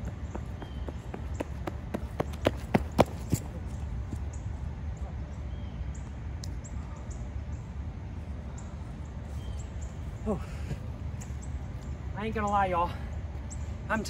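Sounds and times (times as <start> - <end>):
running footsteps on asphalt: 0.0 - 4.4
low outdoor rumble: 0.0 - 14.0.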